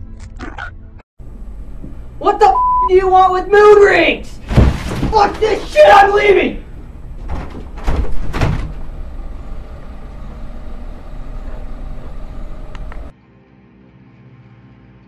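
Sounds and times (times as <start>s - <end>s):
heavy thumps: 4.4s - 5.6s
steady low rumble: 6.6s - 13.1s.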